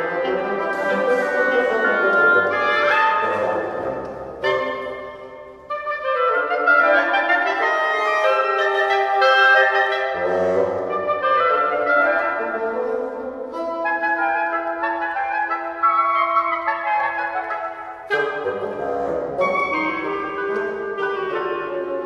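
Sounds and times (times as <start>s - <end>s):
woodwind trio playing: 0.0s - 22.0s.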